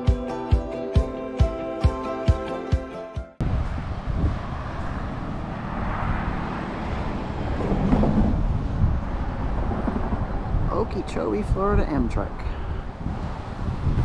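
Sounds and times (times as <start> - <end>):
faint road traffic: 3.4 - 14.0
wind buffeting microphone: 3.4 - 14.0.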